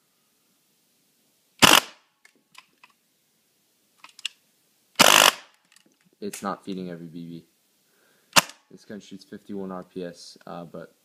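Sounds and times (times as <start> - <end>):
airsoft gun full-auto bursts: 1.6 - 2.0, 5.0 - 5.5.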